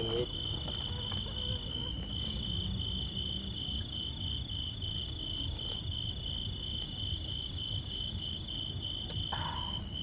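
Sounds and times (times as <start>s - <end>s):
insects pulsing trill: 0.0s - 10.0s.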